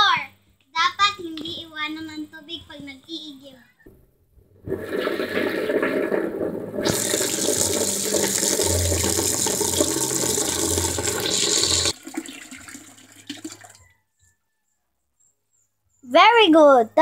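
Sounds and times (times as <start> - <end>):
water dribbling: 4.6 - 13.8
tap water splashing into basin: 4.7 - 13.8.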